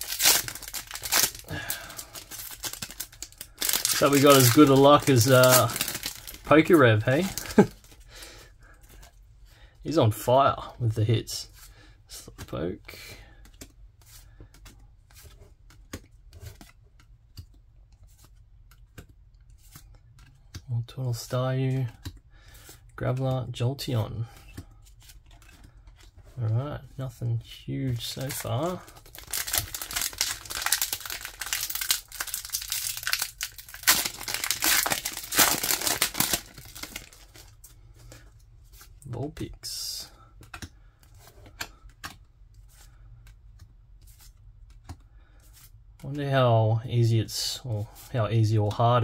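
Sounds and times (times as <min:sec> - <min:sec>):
foil wrapper ripping: 0:00.0 - 0:07.8, 0:28.2 - 0:37.5
foil wrapper crinkling: 0:00.0 - 0:08.0, 0:28.0 - 0:37.6
trading cards flicking and rustling: 0:00.0 - 0:08.1, 0:13.3 - 0:39.4, 0:40.2 - 0:46.1.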